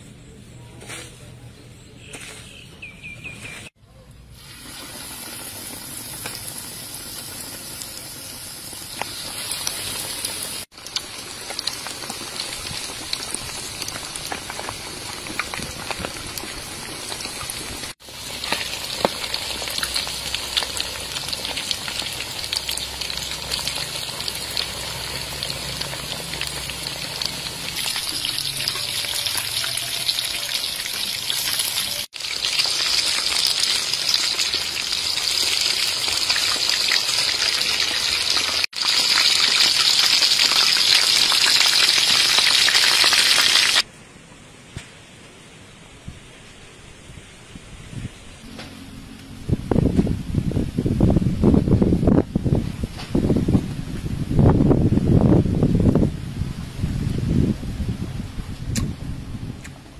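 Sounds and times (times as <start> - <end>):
chicken deep-frying in oil: 3.5 - 43.9.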